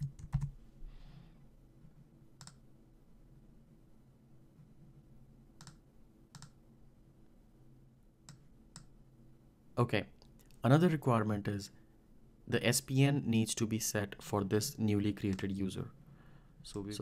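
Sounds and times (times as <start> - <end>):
faint low hum: 0.0 - 17.0
computer mouse clicking: 2.4 - 2.6, 5.6 - 6.6, 8.2 - 8.9.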